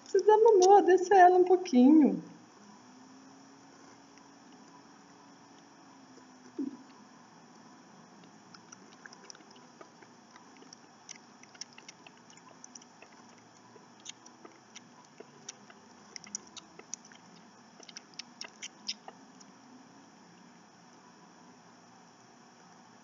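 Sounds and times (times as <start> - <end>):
kittens suckling wet clicks: 0.1 - 0.8, 8.2 - 19.5.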